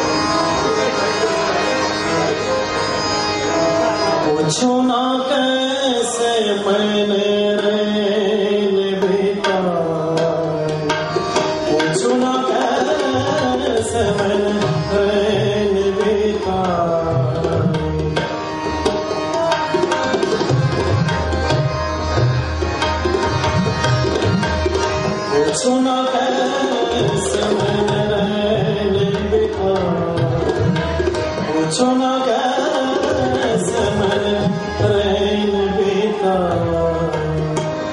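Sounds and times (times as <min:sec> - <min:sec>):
harmonium playing: 0:00.0 - 0:37.9
tabla beat: 0:00.0 - 0:37.9
man singing: 0:04.0 - 0:18.3, 0:25.1 - 0:37.9.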